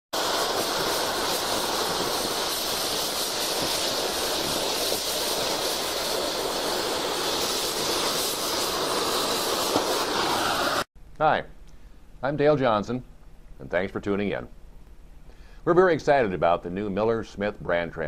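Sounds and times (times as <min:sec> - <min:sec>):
cutting torch hissing: 0:00.1 - 0:10.9.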